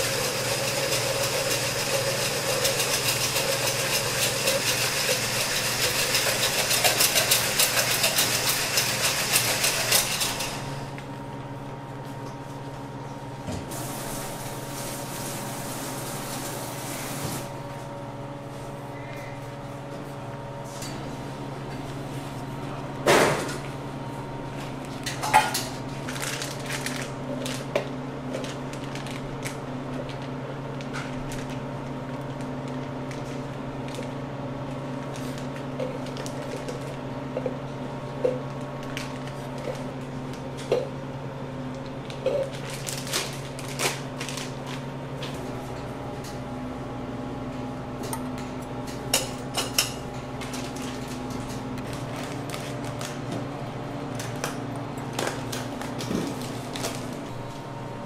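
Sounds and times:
machine hum: 0:00.0 - 0:58.0
utensils and dishes clinking: 0:48.8 - 0:51.6.

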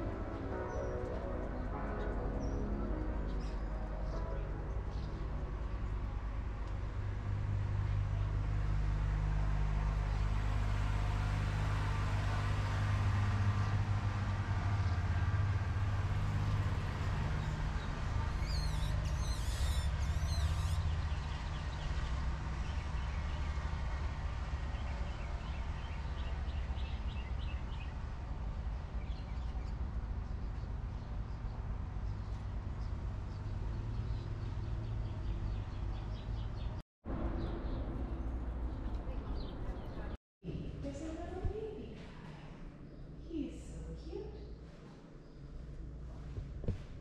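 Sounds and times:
low motor hum: 0:04.6 - 0:40.2
birds chirping: 0:07.9 - 0:23.6, 0:24.7 - 0:40.2.

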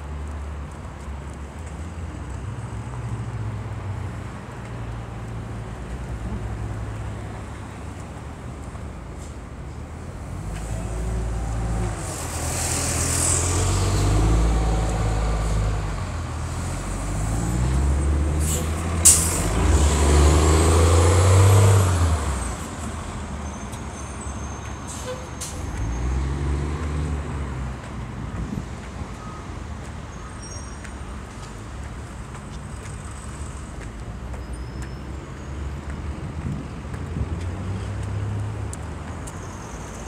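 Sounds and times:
heavy vehicle engine: 0:03.9 - 0:34.4
air brake hiss: 0:18.4 - 0:19.6, 0:24.9 - 0:25.7.

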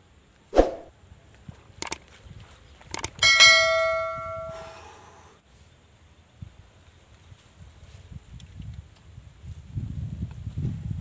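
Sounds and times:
mouse clicks: 0:01.8 - 0:02.0, 0:02.9 - 0:03.2
notification bell ringing: 0:03.2 - 0:04.6.

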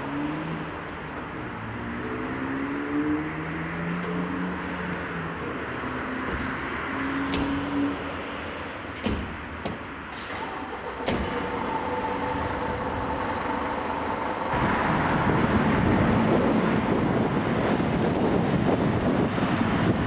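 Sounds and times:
heavy diesel engine rumble: 0:03.5 - 0:20.0
truck doors slamming: 0:06.0 - 0:14.5.

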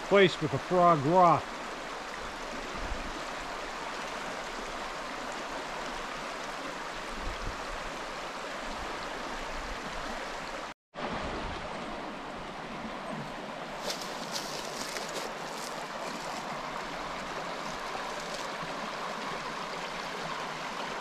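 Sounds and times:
creek water rushing over stones: 0:00.0 - 0:21.0.

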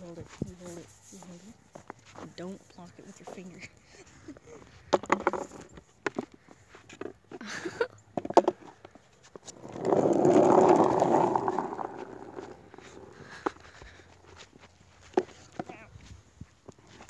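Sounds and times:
skateboard rolling on asphalt: 0:08.2 - 0:15.6.

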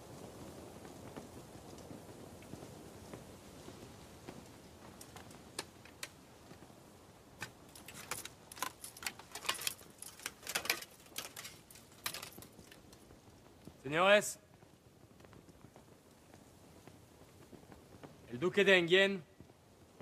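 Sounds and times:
metal armour clinking: 0:07.7 - 0:12.6.

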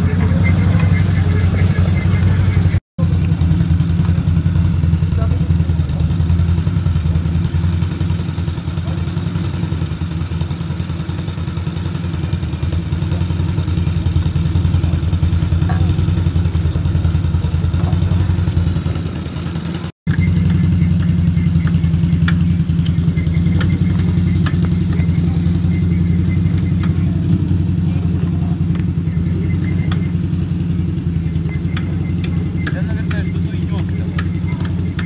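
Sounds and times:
quad bike engines running: 0:00.0 - 0:35.0
sharp clicks: 0:20.1 - 0:27.3.

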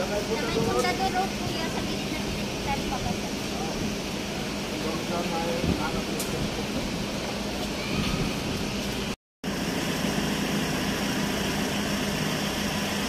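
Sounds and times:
outdoor hiss: 0:00.0 - 0:13.0
vehicle engine idling: 0:08.8 - 0:13.0.

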